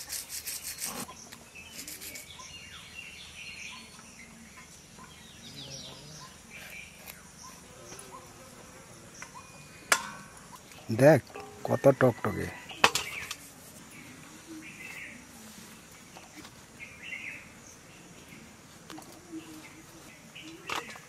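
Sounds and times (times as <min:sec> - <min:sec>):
blade scraping fish scales: 0:00.0 - 0:01.1, 0:01.7 - 0:02.3
birds chirping: 0:00.0 - 0:21.0
insects buzzing: 0:00.0 - 0:21.0.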